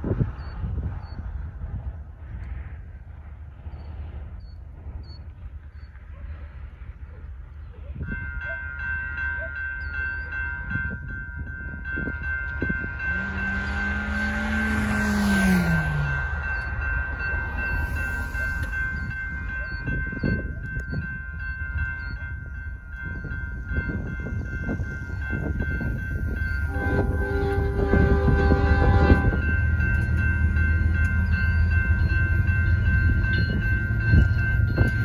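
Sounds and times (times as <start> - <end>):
freight train rumble: 0.0 - 35.0
railroad crossing bell ringing: 3.8 - 35.0
locomotive horn blast: 26.6 - 29.5.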